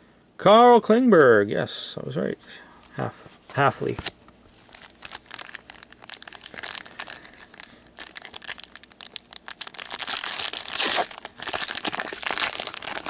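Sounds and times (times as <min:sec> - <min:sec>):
plastic wrapper crinkling: 0:03.8 - 0:13.0
wrapper tearing: 0:04.6 - 0:13.0.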